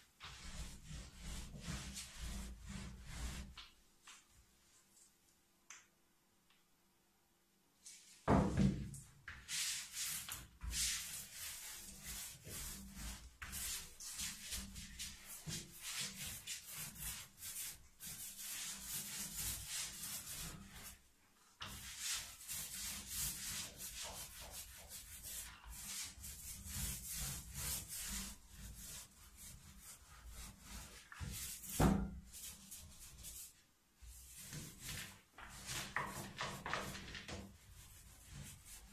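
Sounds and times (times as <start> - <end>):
stiff brush scrubbing: 9.8 - 21.0, 21.6 - 33.5.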